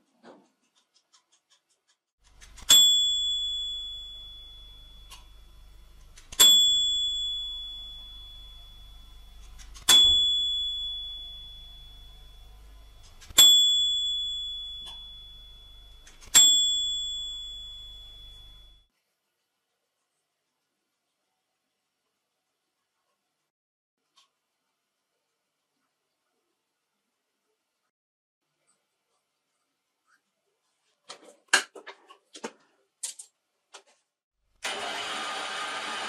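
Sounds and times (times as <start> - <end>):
bright bell ding: 2.7 - 18.9
faint low hum: 3.6 - 13.4.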